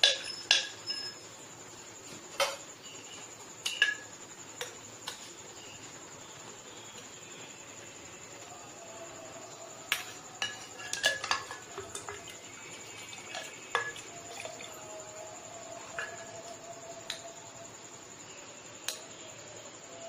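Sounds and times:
spoon clinking against glass jug: 0:09.9 - 0:14.8.

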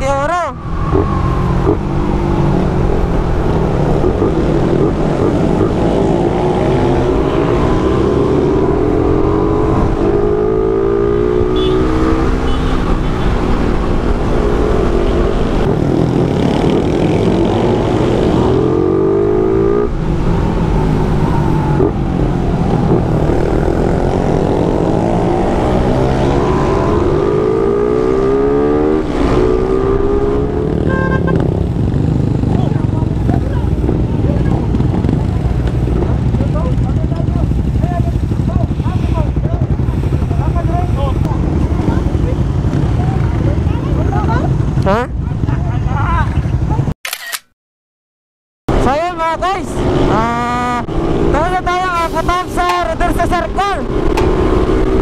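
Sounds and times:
wind and road noise: 0:00.0 - 0:47.5, 0:48.7 - 0:55.0
motorcycle engine accelerating: 0:00.6 - 0:45.2, 0:52.6 - 0:55.0.

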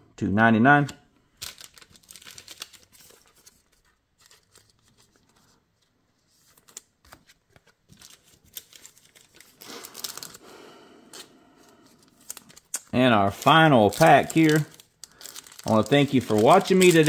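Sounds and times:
foil wrapper crinkling: 0:01.4 - 0:05.3, 0:06.4 - 0:10.5, 0:11.7 - 0:17.0
trading cards clicking and sliding: 0:15.7 - 0:17.0.

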